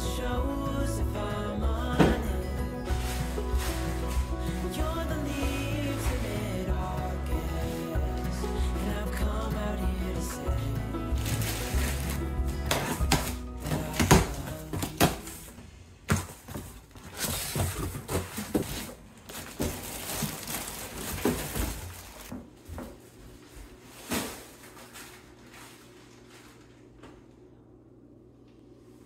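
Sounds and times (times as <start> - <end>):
low steady hum: 0.0 - 29.0
cardboard and plastic rustling: 2.0 - 9.2, 10.2 - 27.3
packing tape being cut: 11.1 - 15.3.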